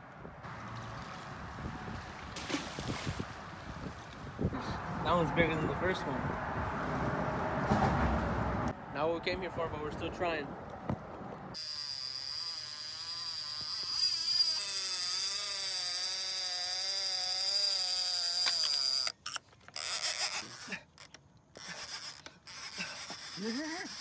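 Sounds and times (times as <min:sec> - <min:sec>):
fishing reel drag buzzing: 0:11.5 - 0:24.0.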